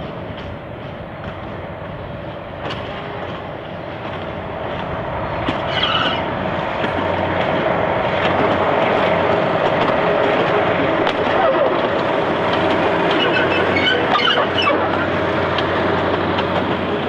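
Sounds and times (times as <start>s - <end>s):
railmotor diesel engine hum: 0.0s - 17.0s
wheel clicks over rail joints: 4.0s - 16.9s.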